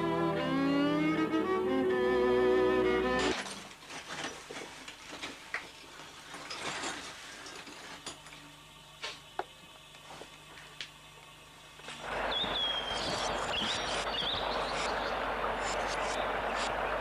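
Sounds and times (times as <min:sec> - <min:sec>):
violin music: 0:00.0 - 0:03.3
faint low hum: 0:03.2 - 0:17.0.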